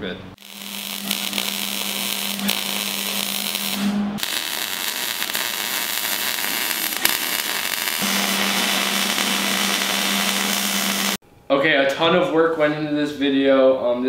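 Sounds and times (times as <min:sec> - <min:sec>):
welding arc crackling: 0:00.4 - 0:11.2.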